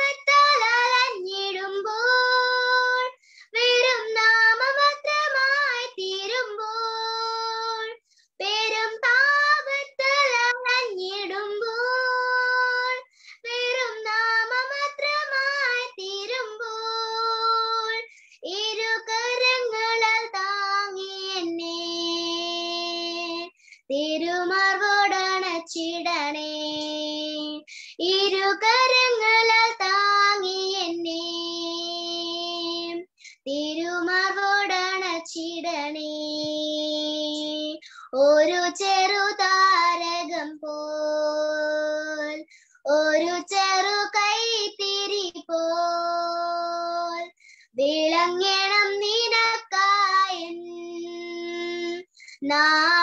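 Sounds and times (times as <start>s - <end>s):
girl singing: 0.0s - 53.0s
girl breathing: 3.2s - 3.6s, 13.0s - 13.5s, 18.0s - 18.4s, 27.6s - 28.0s, 42.4s - 42.8s, 47.3s - 47.8s, 52.1s - 52.5s.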